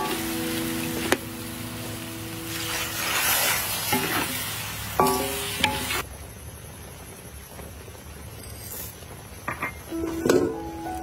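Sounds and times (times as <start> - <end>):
food sizzling in a metal pan: 0.0 - 6.1, 8.3 - 11.0
metal spatula scraping a pan: 2.5 - 4.4.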